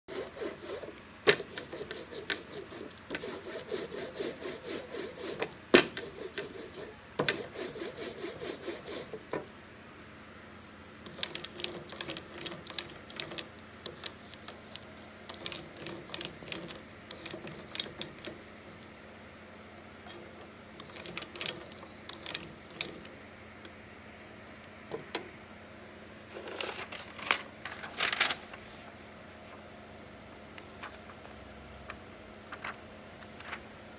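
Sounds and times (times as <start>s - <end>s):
ink roller rubbing: 0.1s - 9.2s.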